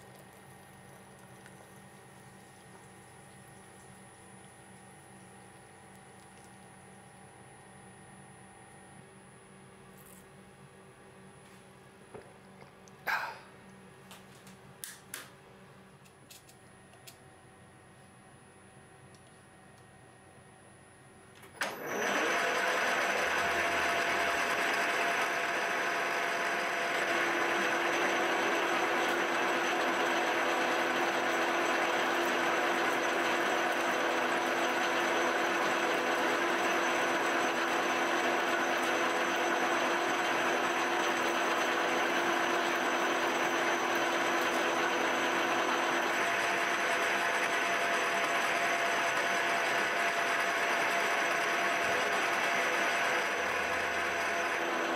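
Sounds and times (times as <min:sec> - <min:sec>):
mill spindle drilling metal: 0:21.6 - 0:54.9.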